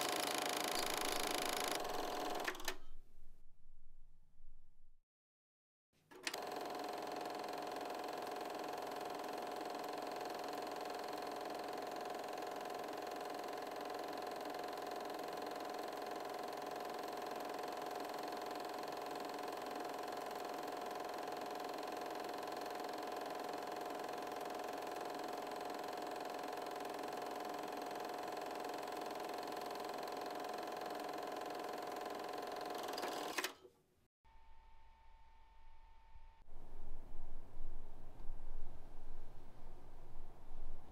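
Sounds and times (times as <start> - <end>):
film projector whirring: 0.0 - 2.8, 6.1 - 33.6.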